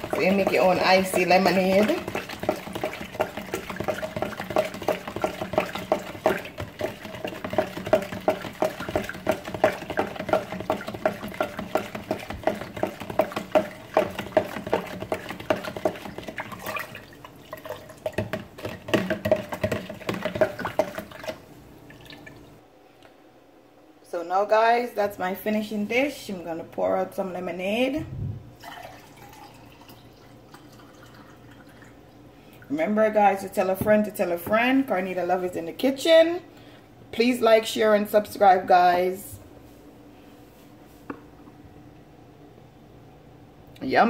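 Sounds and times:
spoon knocking plastic pitcher: 0:00.0 - 0:16.9, 0:18.0 - 0:21.4
liquid swirling: 0:00.0 - 0:22.6.

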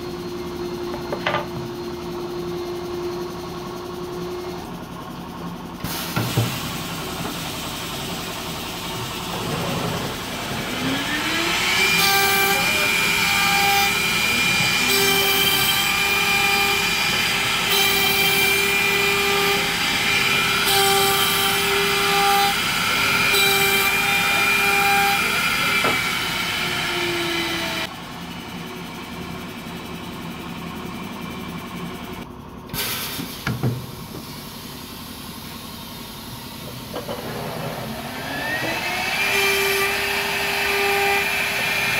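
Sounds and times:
woodworking machine motor whining: 0:00.0 - 0:32.2, 0:36.5 - 0:41.9.

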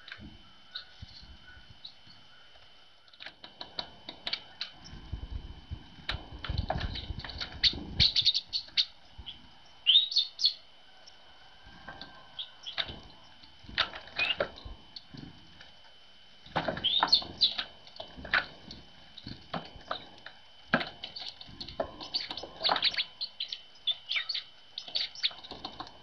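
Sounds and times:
tits chirping: 0:06.8 - 0:11.2, 0:12.4 - 0:13.4, 0:16.8 - 0:17.8, 0:21.0 - 0:25.6.

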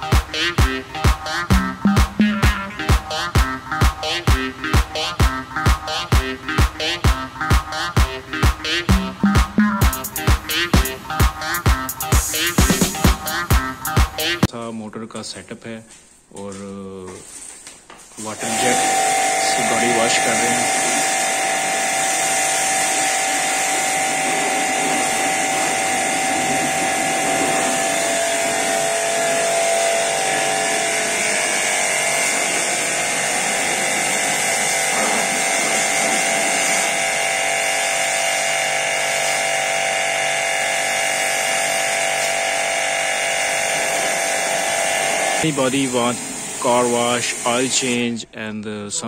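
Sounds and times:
pressure washer motor whine: 0:00.0 - 0:14.5, 0:18.2 - 0:48.1
water jet hissing: 0:18.2 - 0:48.1.

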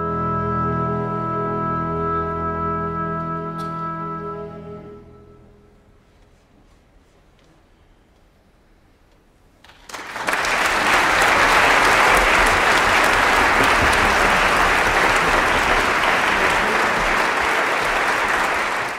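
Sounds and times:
audience applauding: 0:09.7 - 0:18.9.

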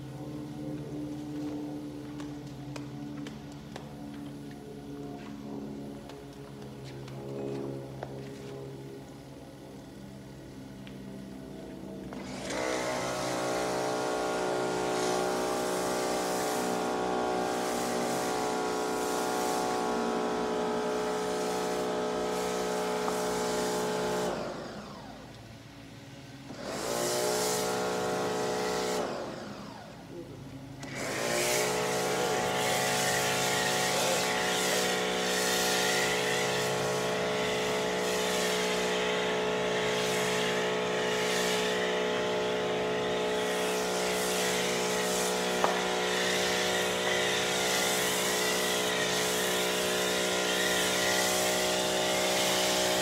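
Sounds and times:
pressure washer motor whine: 0:00.0 - 0:53.0
water spray hissing: 0:31.4 - 0:53.0.

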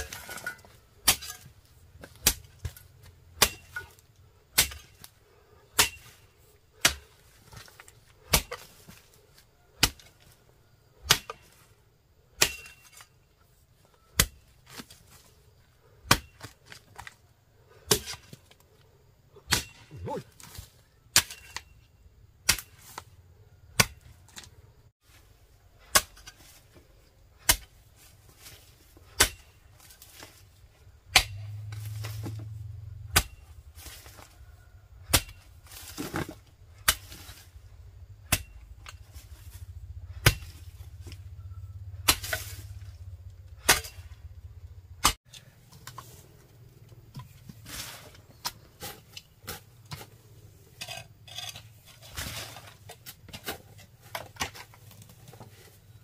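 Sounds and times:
low hum: 0:31.0 - 0:33.8, 0:36.4 - 0:48.4
hand tool striking: 0:31.1 - 0:32.4, 0:40.2 - 0:41.2, 0:42.0 - 0:42.9.

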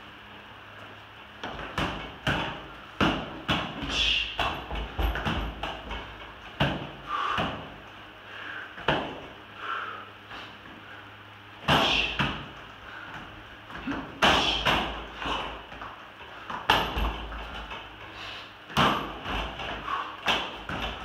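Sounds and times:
sharp knocks on wooden dummy: 0:18.8 - 0:19.7.

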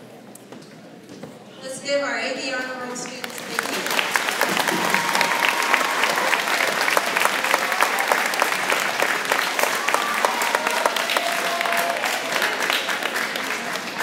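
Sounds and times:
audience applauding: 0:03.2 - 0:14.0.

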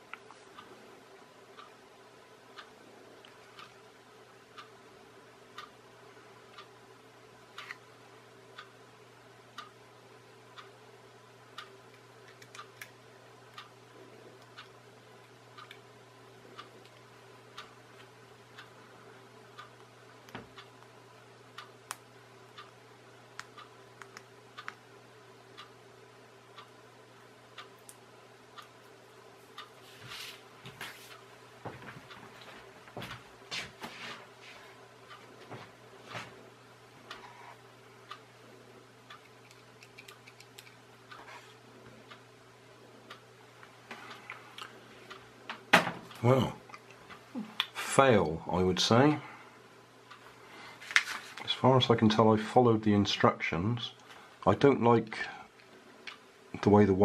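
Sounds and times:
steady low hum: 0:00.0 - 0:57.0
clock ticking: 0:01.5 - 0:01.8, 0:02.5 - 0:03.8, 0:04.5 - 0:04.8, 0:05.5 - 0:05.8, 0:06.5 - 0:06.8, 0:08.5 - 0:08.8, 0:09.5 - 0:09.8, 0:11.5 - 0:11.8, 0:13.5 - 0:13.8, 0:14.4 - 0:18.8.

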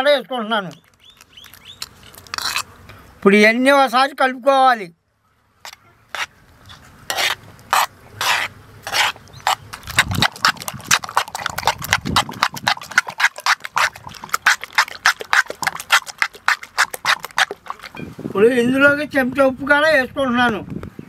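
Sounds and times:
utensil scraping bowl stirring batter: 0:06.2 - 0:18.0.

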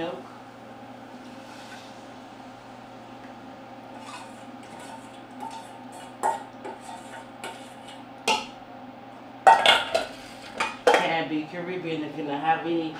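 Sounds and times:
steady low hum: 0:00.0 - 0:12.9
metal kitchenware scraping pot: 0:04.0 - 0:08.0.

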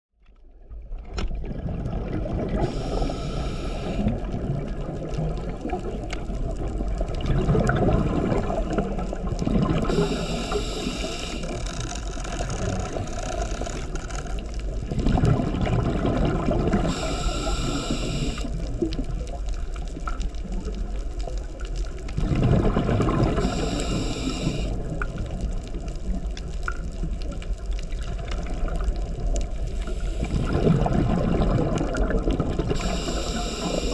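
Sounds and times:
bubbling exhaled air: 0:01.4 - 0:19.2, 0:22.2 - 0:25.4, 0:28.1 - 0:33.9
hissing regulator inhale: 0:02.6 - 0:04.2, 0:09.9 - 0:14.4, 0:16.8 - 0:18.5, 0:23.4 - 0:24.8, 0:29.7 - 0:30.7, 0:32.8 - 0:33.9.

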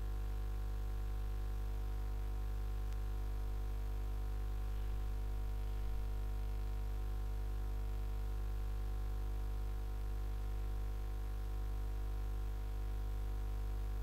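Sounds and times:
electrical mains hum: 0:00.0 - 0:14.0
faint hiss: 0:01.6 - 0:08.6.

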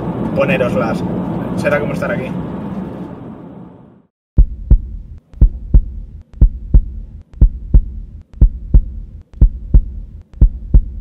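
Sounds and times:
heartbeat thumps: 0:04.4 - 0:11.0.

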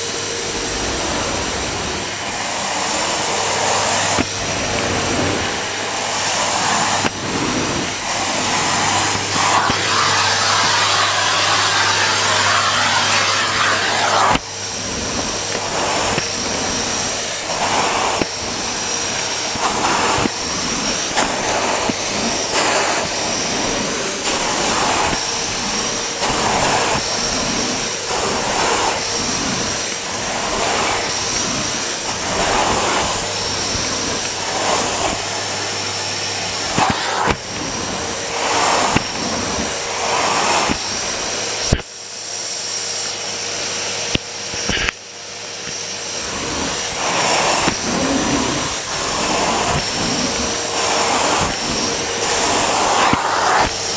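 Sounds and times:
vacuum cleaner running: 0:00.0 - 0:53.9.

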